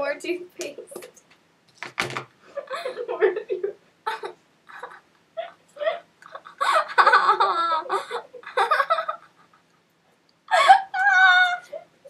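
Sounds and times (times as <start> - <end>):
girls laughing and giggling: 2.5 - 9.8, 10.5 - 11.9.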